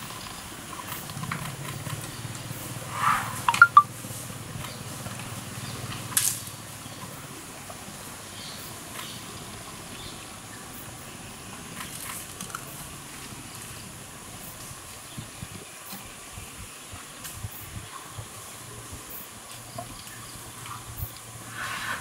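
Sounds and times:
quiet forest background: 0:00.0 - 0:22.0
vegetation cracking and rustling: 0:11.8 - 0:12.8.

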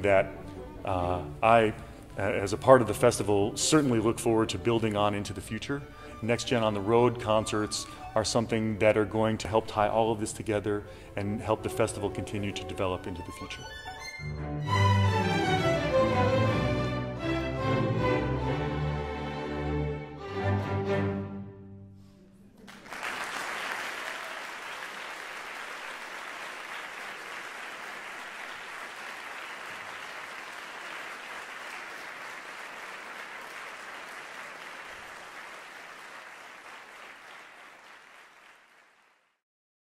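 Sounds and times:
string orchestra chord: 0:11.2 - 0:22.1
audience applause: 0:22.6 - 0:39.4.

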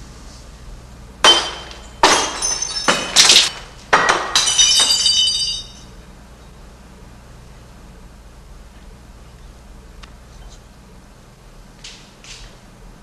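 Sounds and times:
glasses smashing: 0:01.2 - 0:05.9
tinkling glass shards: 0:04.5 - 0:05.9.

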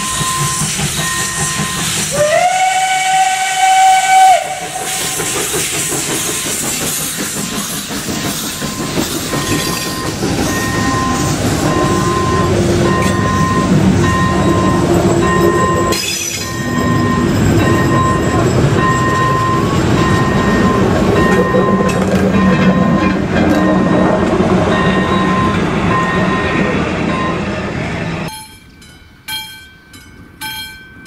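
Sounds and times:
level-crossing warning beeps: 0:00.0 - 0:02.1, 0:08.2 - 0:27.7
train wheels clattering: 0:00.0 - 0:27.6.

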